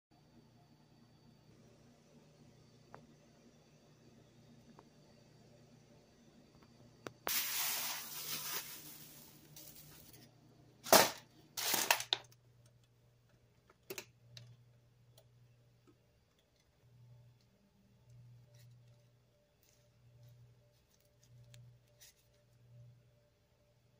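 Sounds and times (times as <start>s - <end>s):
plastic wrap crackles: 7.3s - 10.2s, 10.9s - 12.4s
plastic wrap crinkling: 7.3s - 10.2s, 10.9s - 12.3s.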